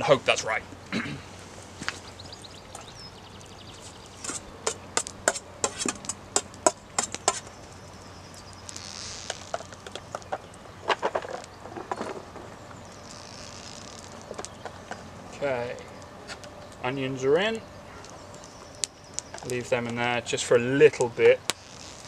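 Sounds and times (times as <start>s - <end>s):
butter hissing: 3.7s - 10.8s, 11.4s - 16.5s, 21.4s - 22.0s.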